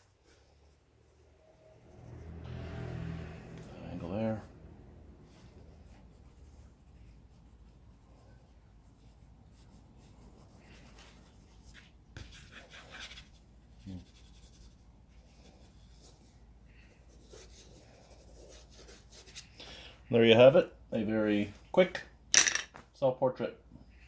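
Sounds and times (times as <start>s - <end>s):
pencil scratching on paper: 0.0s - 2.5s, 5.3s - 19.6s.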